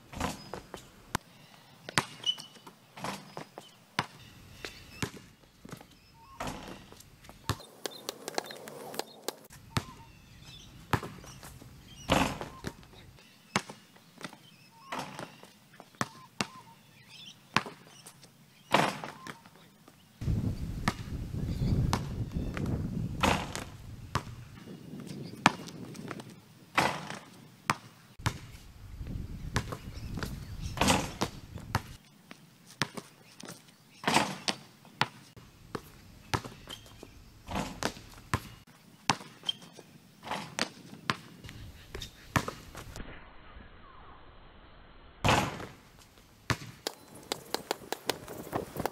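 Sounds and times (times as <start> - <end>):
basketball hitting hoop: 0.1 - 0.6, 6.4 - 7.7, 9.7 - 11.4, 12.0 - 12.9, 21.9 - 24.4, 28.2 - 28.6, 29.5 - 32.0, 35.7 - 39.4, 42.3 - 42.9, 45.2 - 45.9, 46.5 - 46.8
basketball bouncing on concrete: 1.9 - 13.0, 13.6 - 16.6, 17.6 - 17.9, 20.8 - 24.6, 25.4 - 32.0, 34.1 - 39.6, 40.4 - 43.0, 45.3 - 45.8, 46.5 - 48.9.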